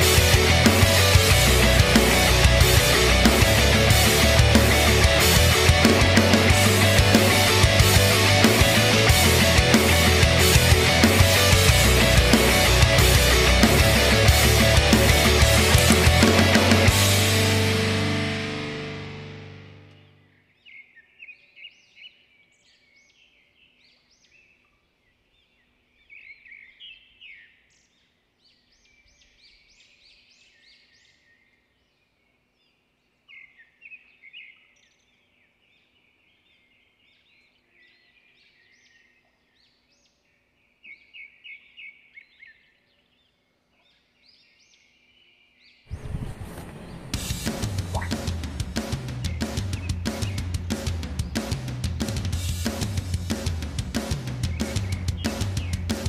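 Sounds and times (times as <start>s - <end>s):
small birds chirping: 19.8s - 51.7s, 54.0s - 56.0s.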